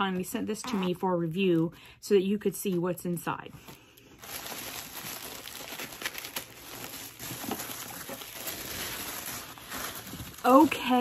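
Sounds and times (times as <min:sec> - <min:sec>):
paper packaging rustling: 0:03.7 - 0:11.0.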